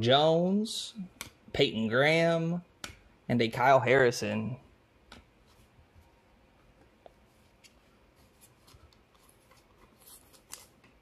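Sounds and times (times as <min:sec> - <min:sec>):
trading cards rustling and ticking: 0:07.0 - 0:11.0.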